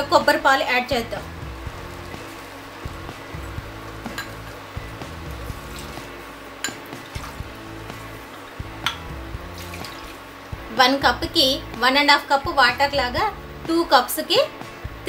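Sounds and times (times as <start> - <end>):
soft background music: 0.0 - 15.0
coconut milk pouring: 5.2 - 8.7, 9.5 - 10.4
bowl clicking against metal rim: 6.6 - 7.0, 8.8 - 9.1.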